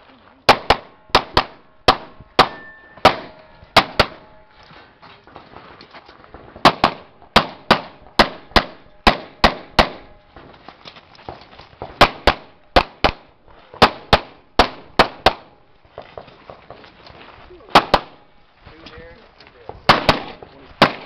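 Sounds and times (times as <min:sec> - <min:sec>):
rapid pistol shots: 0:00.5 - 0:04.3, 0:06.6 - 0:10.1, 0:11.9 - 0:15.6, 0:17.7 - 0:18.2, 0:19.9 - 0:21.0.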